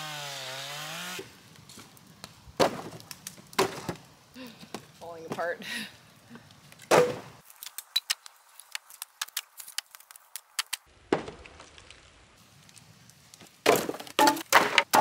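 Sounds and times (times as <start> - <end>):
wood slabs knocking together: 13.6 - 15.0.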